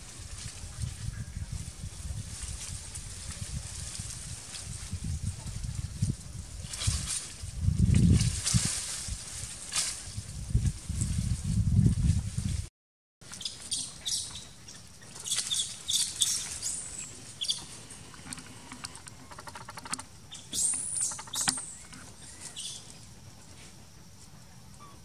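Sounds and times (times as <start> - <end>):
high-pitched animal chirps and squeaks: 13.4 - 17.7, 19.2 - 22.9
rapid ticking: 17.5 - 20.1.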